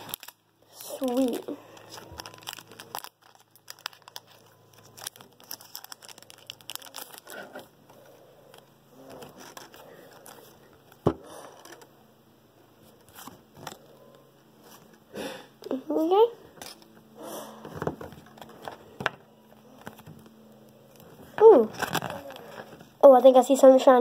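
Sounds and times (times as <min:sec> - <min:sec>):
foil pack crinkling: 0:00.0 - 0:11.9, 0:20.9 - 0:22.9.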